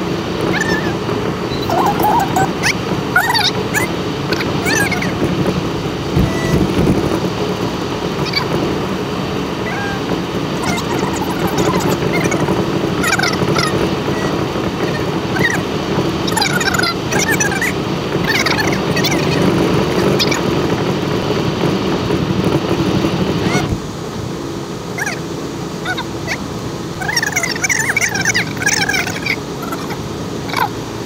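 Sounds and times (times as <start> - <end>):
car road and engine noise: 0.0 - 31.0
dog whimpering: 0.5 - 5.1, 9.6 - 15.6, 25.8 - 26.4, 27.0 - 30.8.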